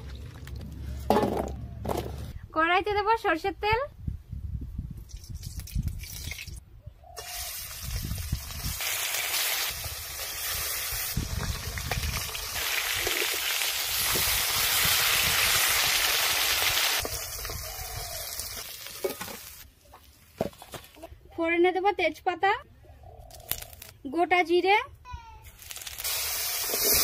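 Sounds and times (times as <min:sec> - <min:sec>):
fish sizzling in hot oil: 0:07.2 - 0:19.6, 0:25.6 - 0:27.0.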